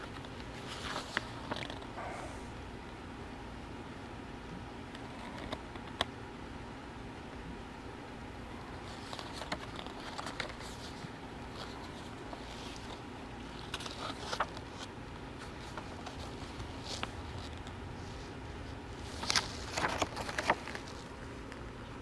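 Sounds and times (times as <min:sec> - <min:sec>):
handling rustles and clicks: 0:00.0 - 0:02.0, 0:08.8 - 0:17.8, 0:19.0 - 0:21.7
faint background hum: 0:00.0 - 0:22.0.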